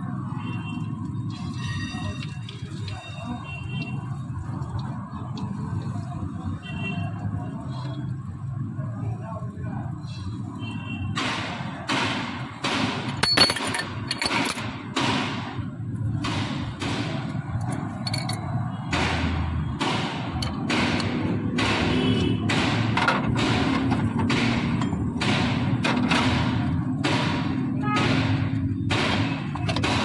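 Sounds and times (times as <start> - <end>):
hammer striking metal: 18.9 - 30.0.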